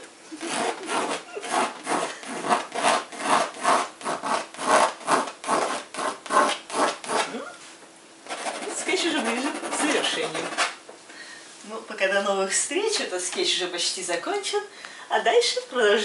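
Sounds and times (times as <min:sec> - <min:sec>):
pencil scratching on canvas: 0:00.4 - 0:07.3, 0:08.2 - 0:10.8.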